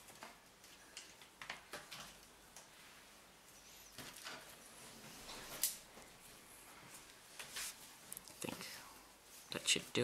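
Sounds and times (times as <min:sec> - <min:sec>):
faint rustle of handling: 0:02.7 - 0:10.0.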